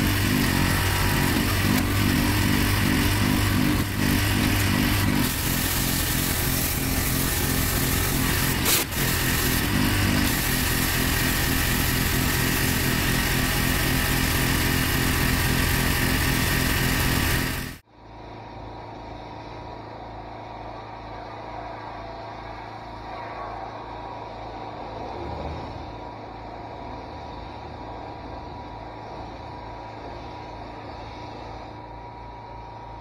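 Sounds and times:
pressure washer engine running: 0.0 - 17.8
steady hum: 0.0 - 33.0
water spraying on paving: 5.2 - 17.8.

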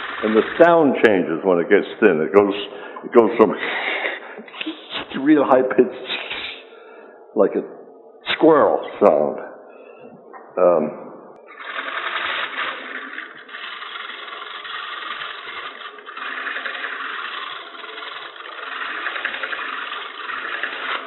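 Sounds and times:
lathe tool scraping wood: 0.0 - 1.0, 11.5 - 21.0.

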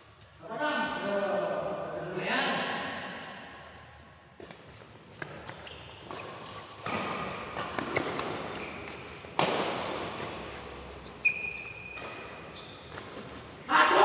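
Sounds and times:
sneakers squeaking on court: 4.4 - 13.7
racket striking shuttlecock: 5.2 - 10.6.

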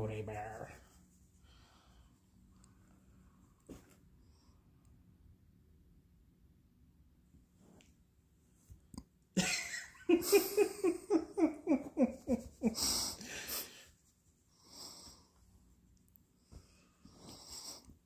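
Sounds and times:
person laughing: 9.4 - 13.8.

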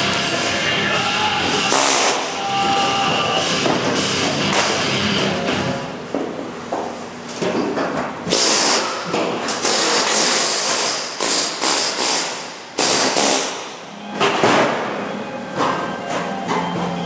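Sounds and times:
pneumatic tool bursts on sheet metal: 1.7 - 2.3, 8.3 - 13.8.

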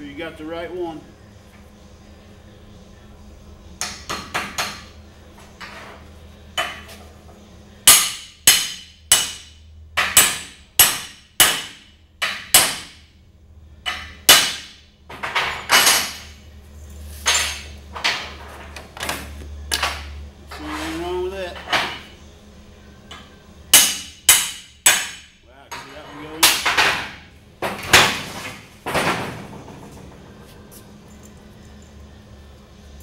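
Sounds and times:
hammer striking metal: 7.8 - 13.0, 13.8 - 14.8, 23.1 - 27.2.

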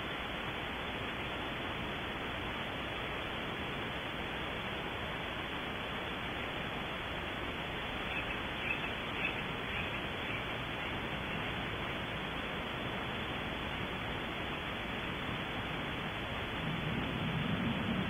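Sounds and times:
steady hiss: 0.0 - 18.0.

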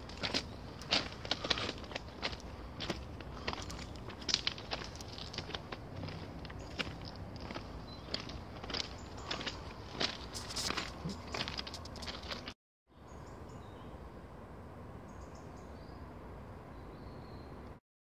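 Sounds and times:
footsteps through undergrowth: 0.0 - 12.5.

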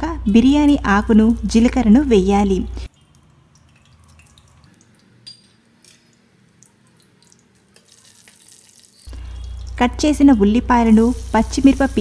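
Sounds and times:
seeds sizzling in hot oil: 7.7 - 12.0.

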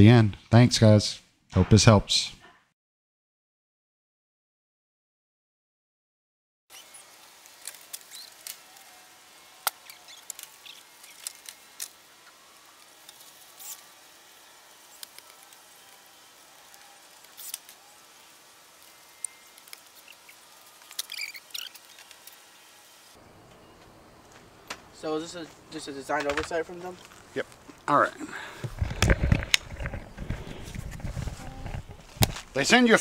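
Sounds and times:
steady hiss: 6.7 - 33.0.

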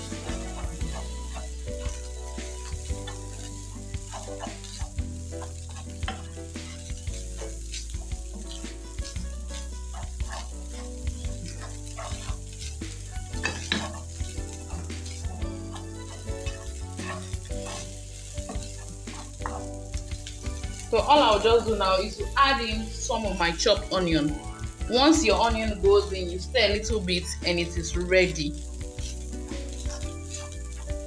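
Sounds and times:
spatula knocking and scraping pan: 0.0 - 21.7
food sizzling in a pan: 0.0 - 31.0.

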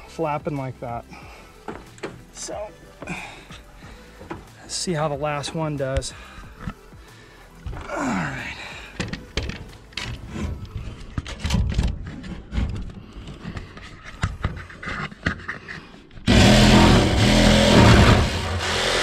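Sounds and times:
jigsaw cutting sheet metal: 16.3 - 19.0.

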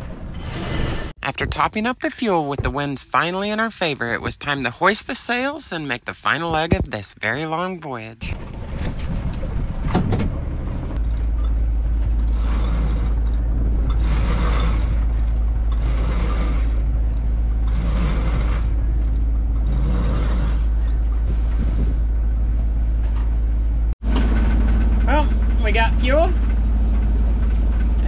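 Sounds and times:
steady low rumble: 8.2 - 28.0
winch ratcheting: 11.0 - 16.9, 17.7 - 20.7.

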